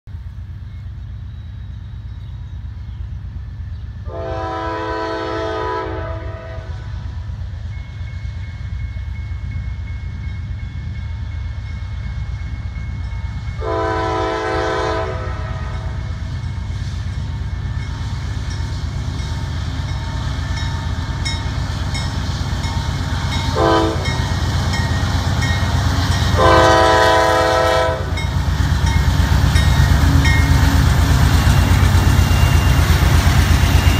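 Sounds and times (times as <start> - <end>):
locomotive horn blasts: 4.1 - 6.9, 13.6 - 16.1, 23.5 - 24.3, 26.2 - 28.3
crossing warning bell ringing: 7.6 - 14.4, 17.4 - 33.9.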